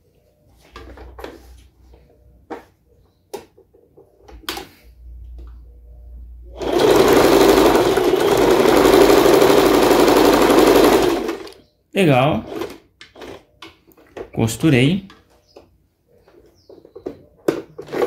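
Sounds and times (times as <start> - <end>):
sewing machine sewing: 6.6 - 11.6, 12.4 - 13.4.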